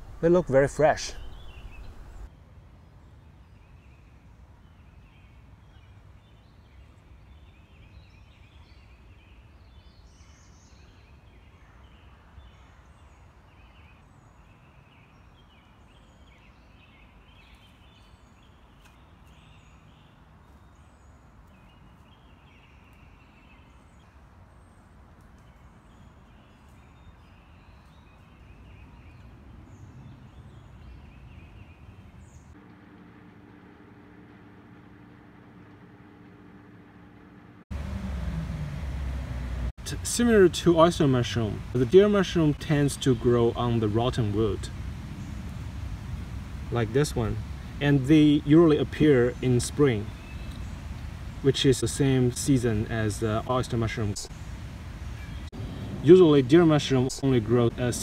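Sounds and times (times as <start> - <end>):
birds singing and chirping: 0.0 - 2.3, 25.4 - 32.6, 39.9 - 58.0
low steady background hiss: 0.0 - 37.6, 39.8 - 58.0.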